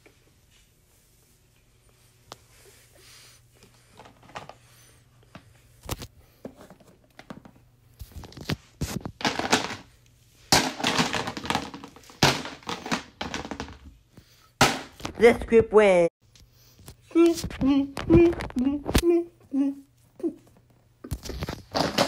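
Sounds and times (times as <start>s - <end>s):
rustling and crinkling: 0.0s - 13.9s, 20.5s - 22.0s.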